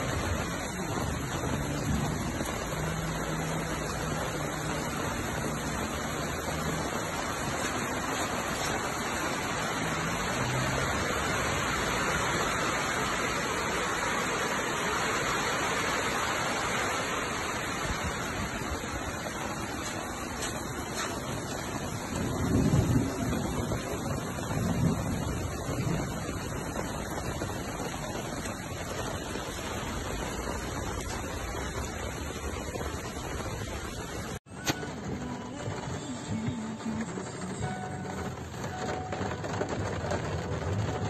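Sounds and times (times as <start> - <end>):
heavy rain falling: 0.0 - 41.0.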